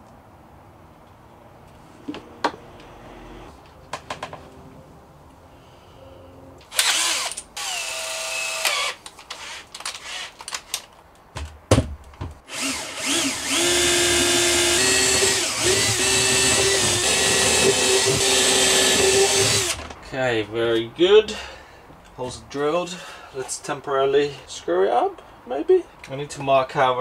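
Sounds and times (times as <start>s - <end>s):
cordless drill whining: 6.6s - 10.5s, 12.5s - 19.9s.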